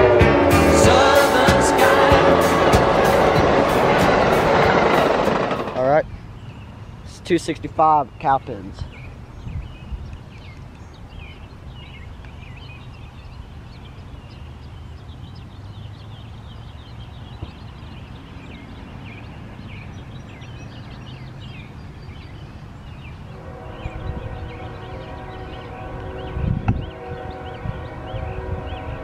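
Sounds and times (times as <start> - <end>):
locomotive horn: 0.0 - 5.9, 23.3 - 29.0
low rumble: 0.0 - 6.0
songbirds chirping: 0.8 - 29.0.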